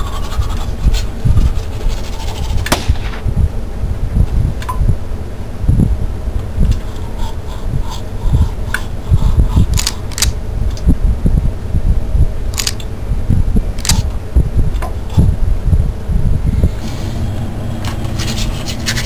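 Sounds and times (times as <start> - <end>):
toothbrush scrubbing teeth: 0.0 - 2.6
low thumps: 2.4 - 16.9
sharp clicks: 9.7 - 10.9, 12.5 - 12.9, 13.8 - 14.1.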